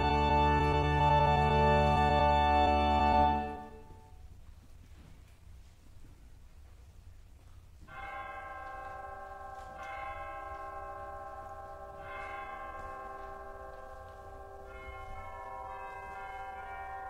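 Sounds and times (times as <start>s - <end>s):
chimes striking the hour: 7.8s - 17.0s.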